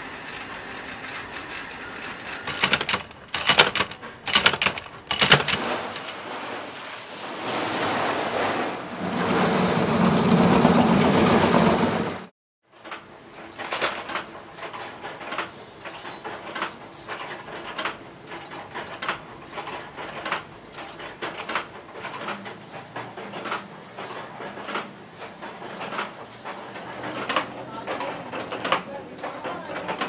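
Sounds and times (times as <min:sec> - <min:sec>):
chain-making machine clacking: 0:00.0 - 0:06.2, 0:12.8 - 0:30.0.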